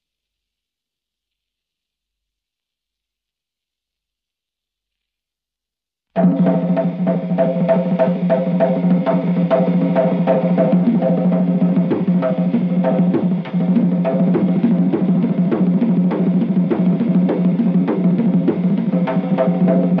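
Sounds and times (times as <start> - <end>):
steady drum beat: 6.2 - 20.0.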